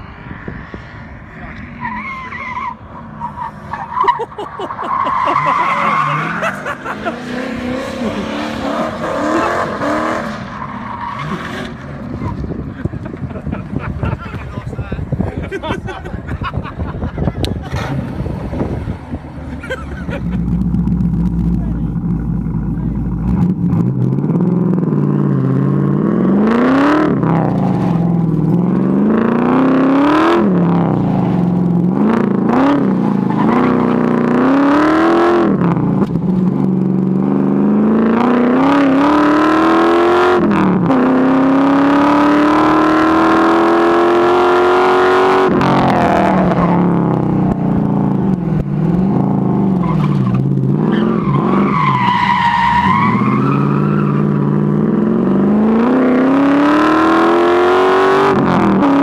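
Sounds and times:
car engine revving: 0.0 - 14.8, 16.4 - 59.0.

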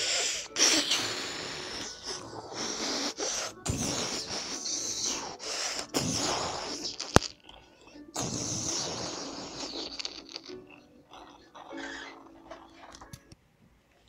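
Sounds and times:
child making hissing mouth sounds: 0.0 - 7.4, 8.2 - 10.6.

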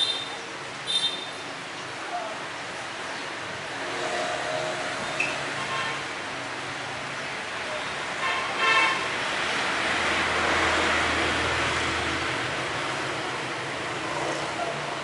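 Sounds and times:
vehicle horn toot: 0.0 - 1.4.

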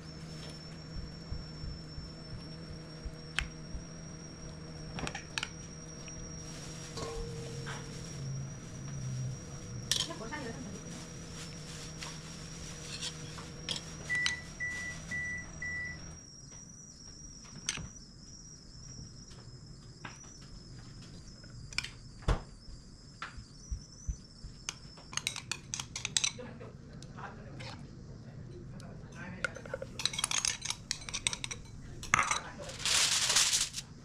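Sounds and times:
kitchen appliance humming: 0.0 - 16.2, 23.3 - 34.0.

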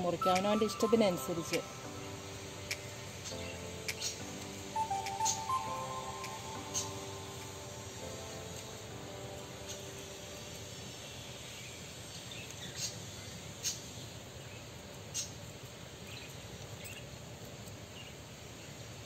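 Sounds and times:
steady background hiss: 0.0 - 19.0
short high chirps: 0.2 - 8.3.

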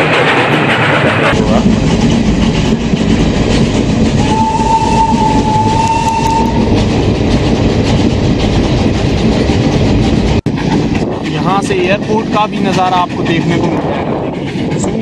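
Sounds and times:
train wheels rumbling and rattling: 0.0 - 15.0
steam train whistle: 4.2 - 6.7.

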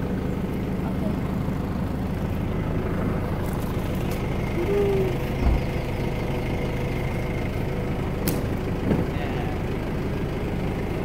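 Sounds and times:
truck engine idling: 0.0 - 11.0
low thump: 5.4 - 5.7.

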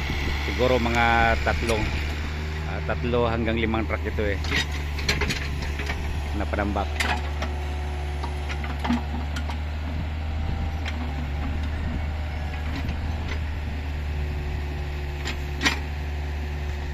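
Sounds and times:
diesel engine droning: 0.0 - 16.9.

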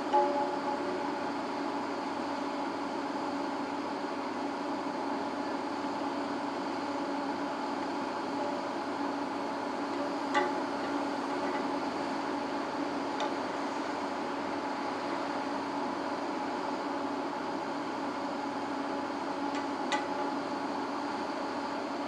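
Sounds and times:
construction machinery humming: 0.0 - 22.0
hammer striking metal: 0.1 - 1.0.

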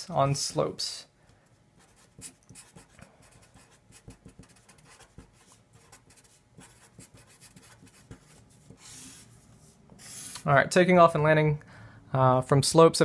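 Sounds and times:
marker writing on paper: 1.8 - 10.4.

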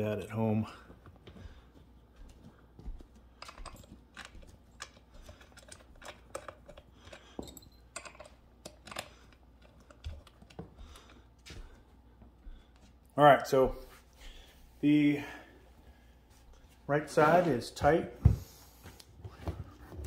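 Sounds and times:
metal screws clicking and tapping: 3.4 - 10.6.

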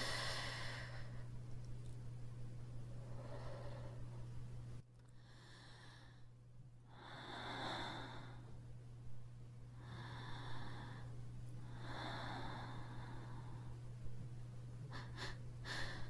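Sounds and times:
person breathing slowly: 0.0 - 1.3, 3.0 - 4.4, 5.2 - 6.3, 6.9 - 8.6, 9.7 - 14.0, 14.8 - 16.0
steady low hum: 0.0 - 16.0.

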